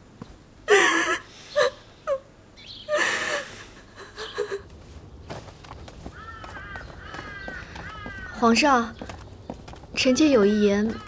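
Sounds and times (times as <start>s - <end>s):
woman sobbing and wailing: 0.7s - 2.3s, 2.9s - 4.7s.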